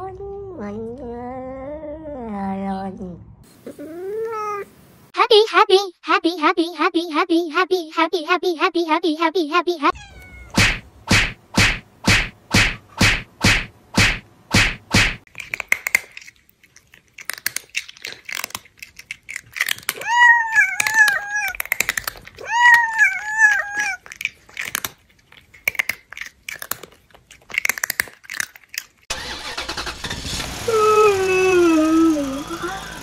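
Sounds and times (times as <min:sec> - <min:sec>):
crunching and clicking: 0:10.6 - 0:29.9
car engine running: 0:29.1 - 0:33.0.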